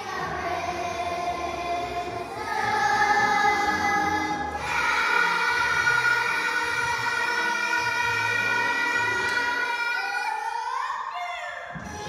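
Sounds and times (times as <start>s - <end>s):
children singing together: 0.0s - 11.2s.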